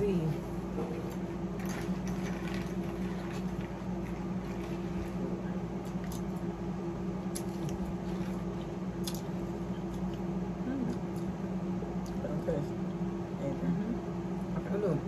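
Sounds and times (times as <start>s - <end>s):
steady low hum: 0.0s - 15.0s
chewing: 7.3s - 10.3s.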